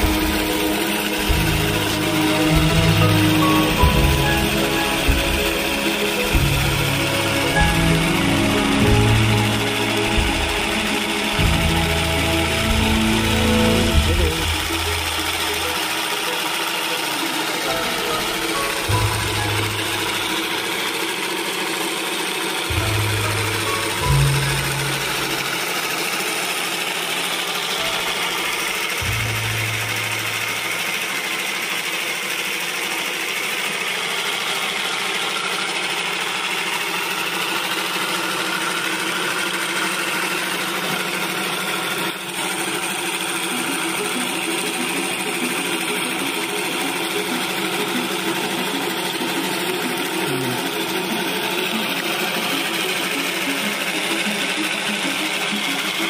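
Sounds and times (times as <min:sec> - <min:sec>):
faint regular beat: 0:00.0 - 0:16.5
model engine whirring and rattling: 0:00.0 - 0:56.0.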